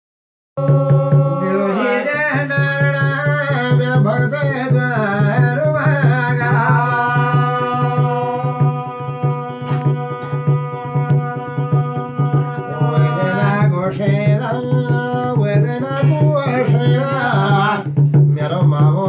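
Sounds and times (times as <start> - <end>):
hand drum beating: 0.6 - 19.0
man singing ornamented line: 0.6 - 19.0.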